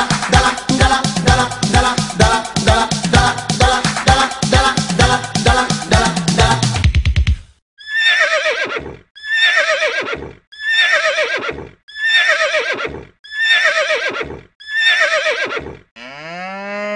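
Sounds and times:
horse whinnying: 7.8s - 15.9s.

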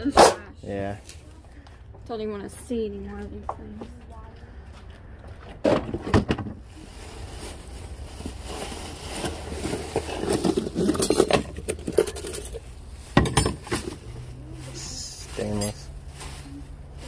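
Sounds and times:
plastic bag rustling: 5.9s - 17.0s
flatware clinking in a box: 9.6s - 12.6s, 13.2s - 14.0s.

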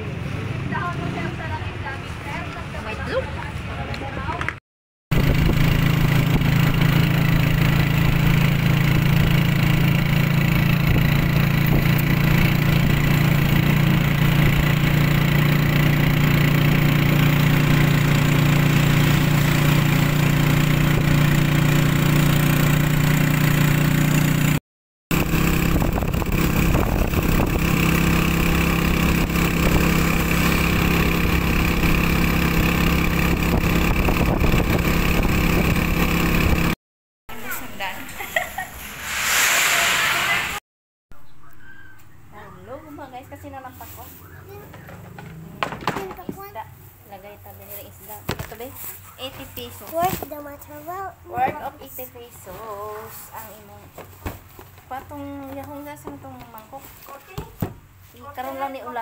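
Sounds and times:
road noise: 0.0s - 23.0s, 37.3s - 40.6s, 41.2s - 51.0s
vehicle engine humming: 5.1s - 24.5s, 41.4s - 48.3s.

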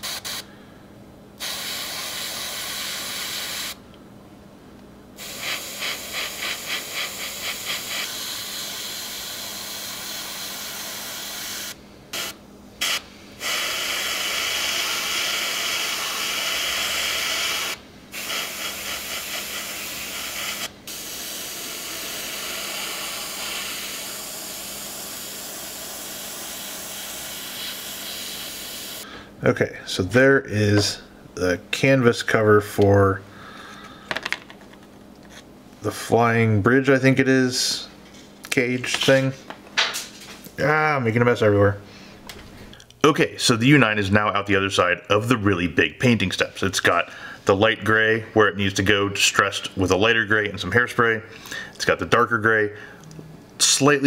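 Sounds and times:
airbrush spraying hiss: 0.0s - 0.5s, 1.4s - 3.8s, 5.2s - 29.1s.

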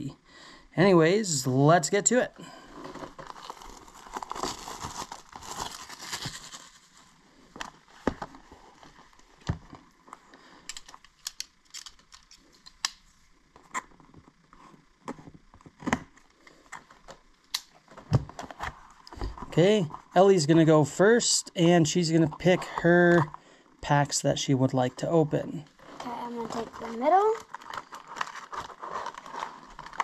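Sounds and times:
plastic wrap tearing and crinkling: 2.8s - 7.1s, 25.9s - 30.0s.

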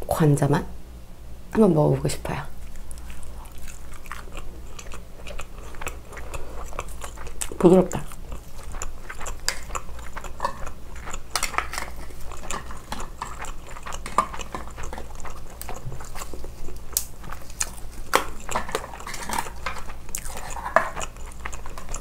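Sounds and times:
chewing: 2.6s - 22.0s.

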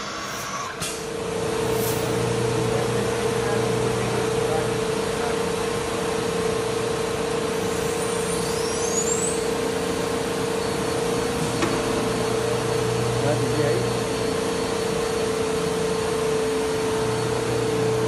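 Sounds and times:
faint high rising whine: 0.0s - 5.5s
cnc router drone: 0.0s - 18.0s.

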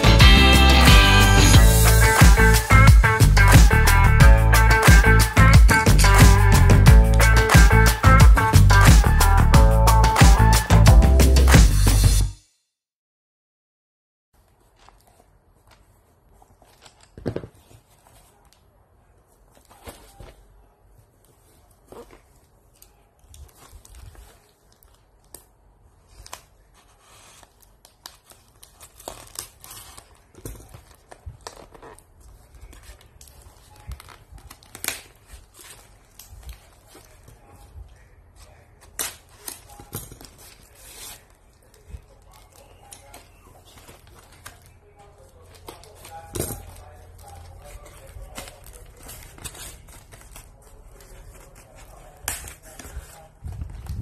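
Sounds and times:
cardboard and paper rustling: 14.4s - 54.0s
tape and box crinkling: 21.6s - 37.8s, 38.5s - 54.0s
packing tape ripping: 27.2s - 37.2s.

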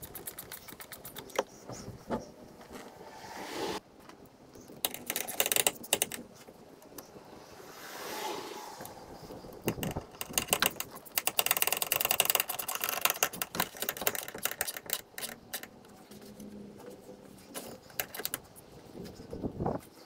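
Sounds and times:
ratcheting clicks: 4.8s - 6.2s, 9.6s - 15.7s.

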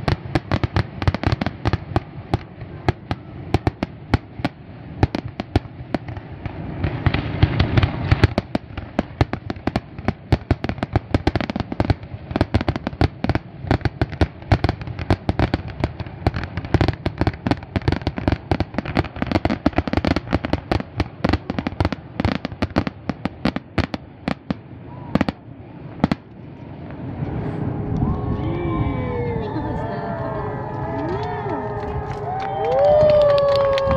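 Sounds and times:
fireworks bangs and crackles: 0.0s - 29.2s, 31.6s - 33.9s
low rumble: 24.1s - 33.9s.

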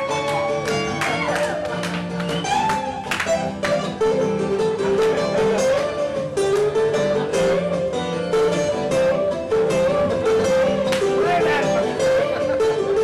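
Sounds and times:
acoustic guitar playing: 0.0s - 13.0s.

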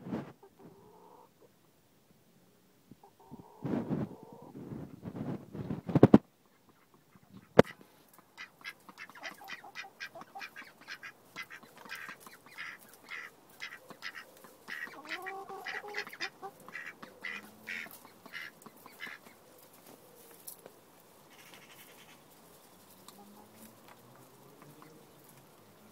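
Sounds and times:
ducks quacking: 6.4s - 19.4s, 21.3s - 22.2s.

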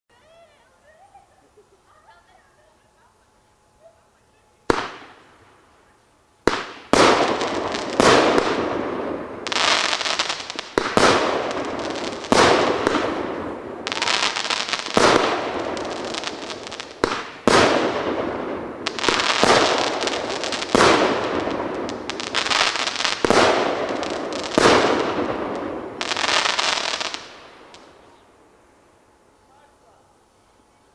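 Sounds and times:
hissing crackling firework tail: 0.1s - 30.9s
firework bangs: 4.7s - 5.6s, 6.4s - 28.2s.

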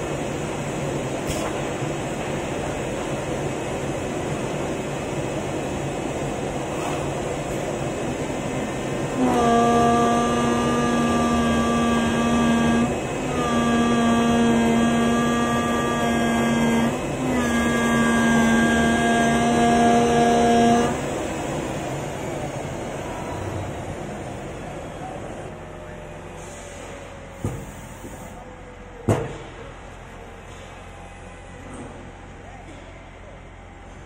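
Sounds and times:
low machine noise: 0.0s - 34.0s
cutting machine pitched hum: 8.0s - 24.7s.

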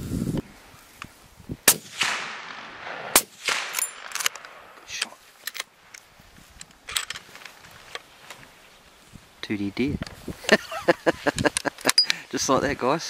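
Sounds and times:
rifle shots with echo: 1.6s - 4.8s.

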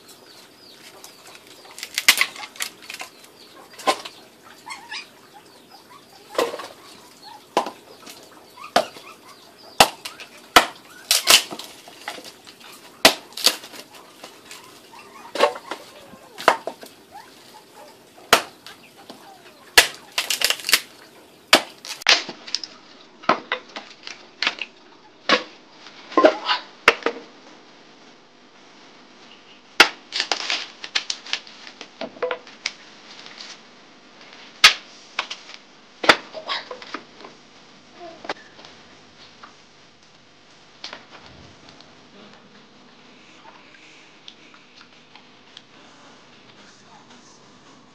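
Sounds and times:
blade chopping wood: 9.8s - 12.3s, 13.0s - 13.8s, 18.3s - 18.6s, 21.5s - 22.4s.

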